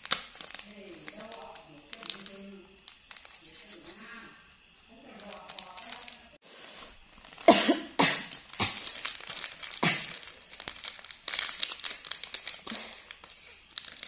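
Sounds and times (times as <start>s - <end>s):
person coughing: 7.5s - 8.8s, 9.8s - 10.2s.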